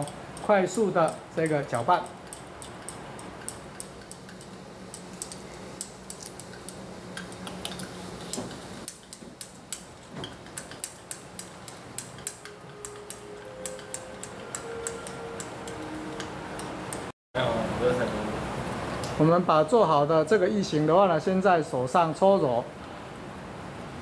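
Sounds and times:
glass rod clinking against beaker: 0:02.0 - 0:17.1.

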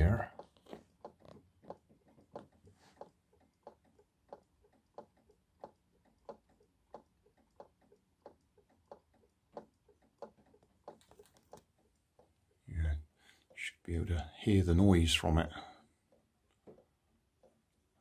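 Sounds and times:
waving cat mechanism ticking: 0:00.0 - 0:13.7.

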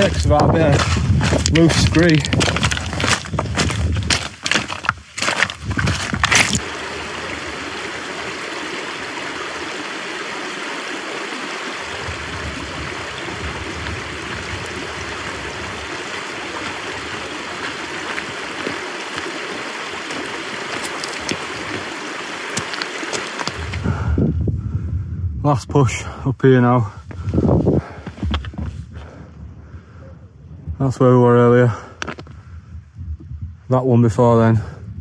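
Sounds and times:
stream running over rocks: 0:00.0 - 0:23.9.

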